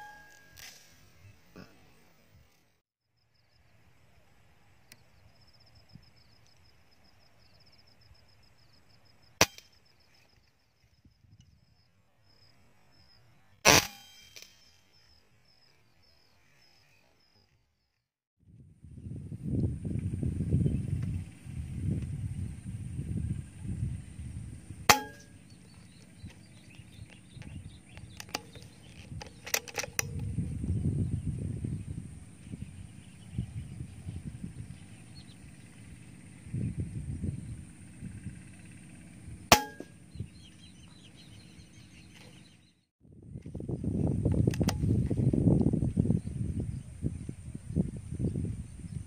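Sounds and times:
air rifle shot crack: 0:09.4 - 0:09.7, 0:13.7 - 0:14.6, 0:24.9 - 0:25.4, 0:39.5 - 0:40.0
wind rumbling on microphone: 0:11.0 - 0:11.8, 0:18.4 - 0:49.0.

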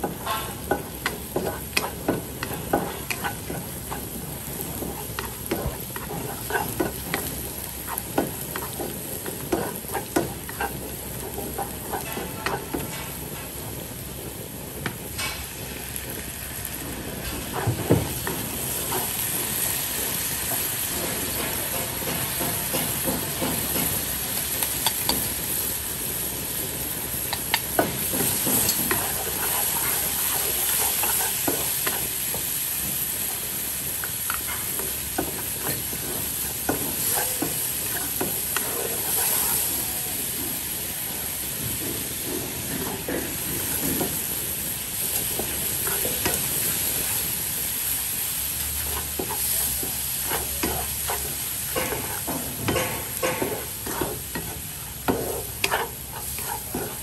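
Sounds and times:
wooden spatula scraping a pan: 0:00.0 - 0:13.1, 0:27.7 - 0:40.0, 0:48.8 - 0:57.0
onions sizzling in oil: 0:00.0 - 0:57.0.

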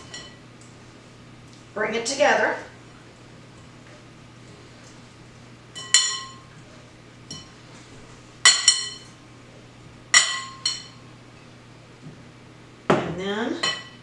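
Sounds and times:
glass bowl clinking: 0:05.7 - 0:06.5, 0:08.4 - 0:09.1, 0:10.1 - 0:11.0, 0:13.6 - 0:14.0.

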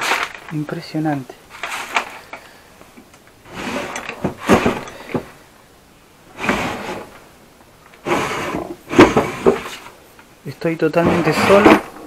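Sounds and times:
wooden drawer sliding: 0:01.5 - 0:02.3, 0:03.4 - 0:05.4, 0:06.3 - 0:07.2, 0:08.0 - 0:10.0, 0:11.0 - 0:12.0
drawer knocks and rattles: 0:03.5 - 0:05.3, 0:08.3 - 0:09.8, 0:11.0 - 0:12.0.

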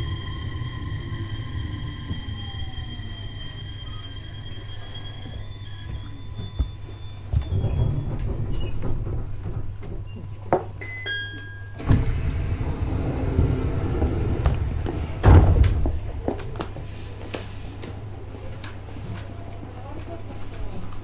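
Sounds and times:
train equipment hum: 0:00.0 - 0:10.8, 0:11.8 - 0:17.2
sliding doors moving: 0:07.3 - 0:10.4, 0:11.8 - 0:16.8
two-note chime: 0:10.8 - 0:11.8
loud door thud: 0:14.6 - 0:16.1.

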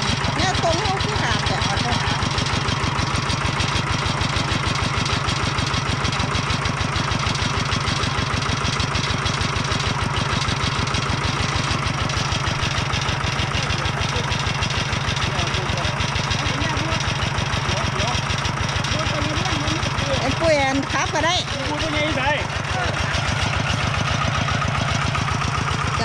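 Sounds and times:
tractor engine running: 0:00.0 - 0:26.0.

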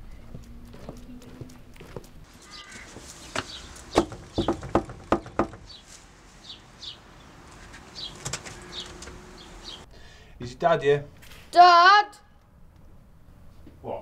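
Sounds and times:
birds chirping: 0:00.0 - 0:09.9
knocking on door: 0:03.3 - 0:05.8.

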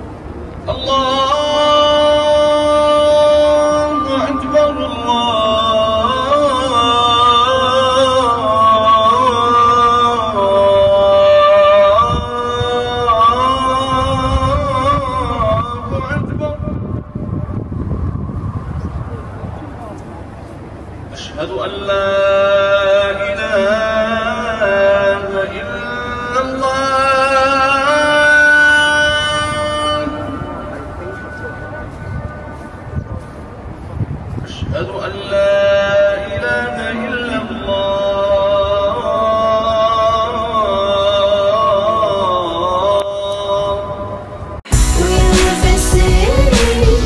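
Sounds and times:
man chanting melodically: 0:00.6 - 0:19.8, 0:21.1 - 0:33.4, 0:34.4 - 0:47.0
person chanting long notes: 0:21.5 - 0:33.3.

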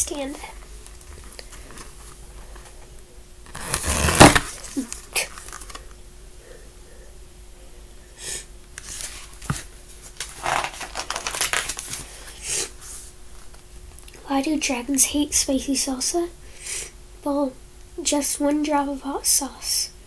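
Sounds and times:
book rustling: 0:03.5 - 0:05.8, 0:08.8 - 0:12.2.

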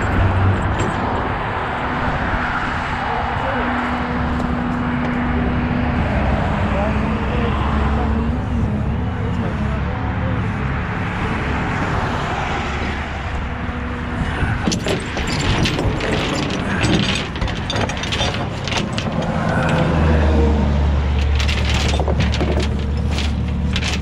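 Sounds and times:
tow chain rattling and clinking: 0:13.4 - 0:24.0.

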